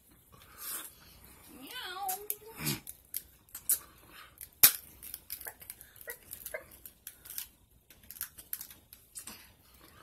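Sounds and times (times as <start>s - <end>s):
crab shell cracking and snapping: 2.3s - 9.3s.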